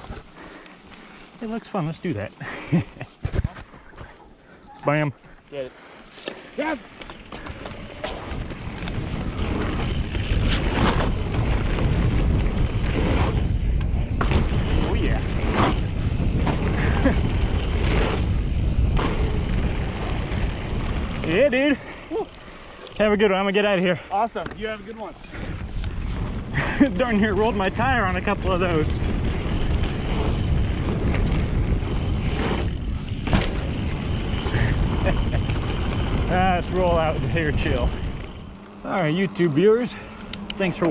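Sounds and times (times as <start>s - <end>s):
wind buffeting microphone: 7.2s - 22.8s, 24.6s - 38.6s
bike knocks: 32.0s - 33.8s.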